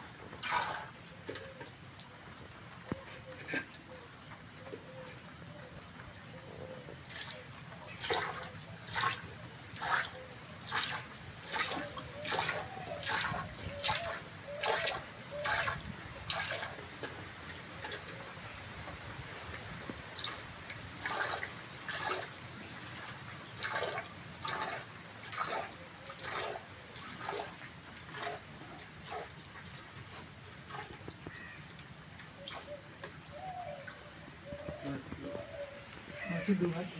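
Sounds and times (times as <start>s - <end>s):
milk squirting into metal pail: 0.3s - 1.4s, 8.0s - 16.8s, 21.0s - 31.0s.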